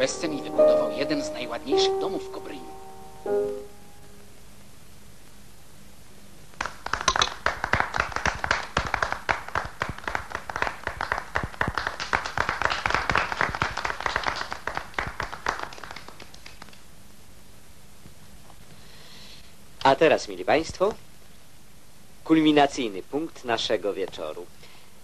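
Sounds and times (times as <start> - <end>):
people applauding: 6.6 - 16.9.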